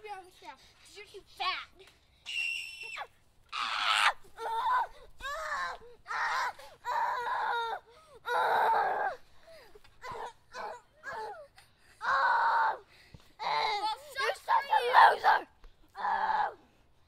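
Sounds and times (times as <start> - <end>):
child yelling and screaming: 2.3 - 9.2, 10.0 - 16.6.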